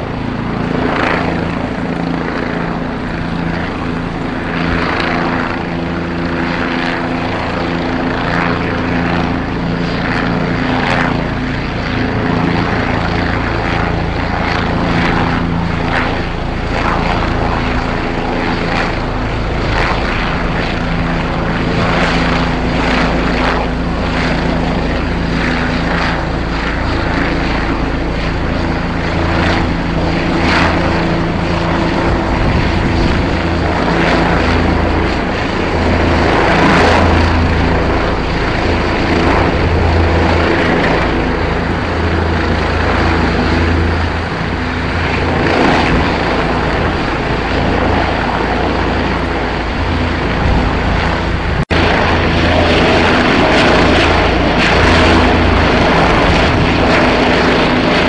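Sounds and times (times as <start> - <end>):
helicopter engine and rotor drone: 0.0 - 58.0.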